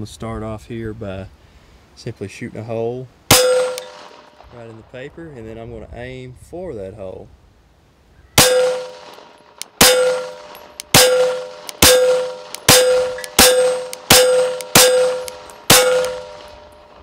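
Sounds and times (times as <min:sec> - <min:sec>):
pistol shots with metallic ring: 0:03.3 - 0:04.4, 0:08.4 - 0:17.0.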